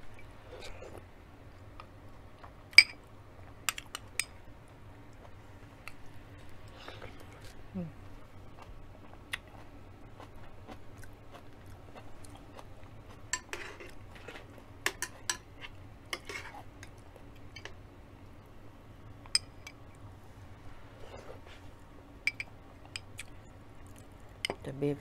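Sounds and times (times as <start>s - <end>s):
person chewing: 1.8s - 2.8s, 5.1s - 14.6s, 22.8s - 24.1s.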